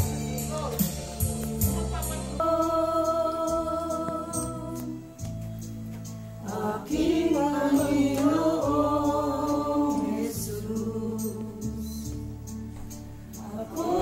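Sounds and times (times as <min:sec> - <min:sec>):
singing voices: 0:00.0 - 0:05.4, 0:06.4 - 0:12.4, 0:13.3 - 0:14.0
sustained bass notes: 0:00.0 - 0:14.0.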